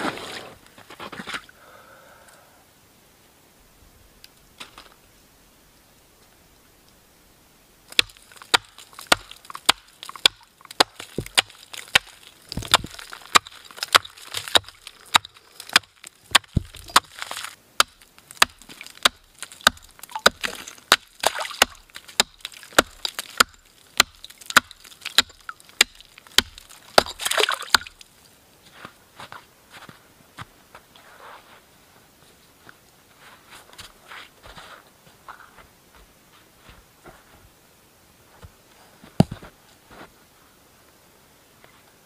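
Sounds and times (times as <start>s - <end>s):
wood being chopped: 7.9s - 28.0s
wood scraping and splintering: 8.0s - 17.6s, 18.2s - 28.0s.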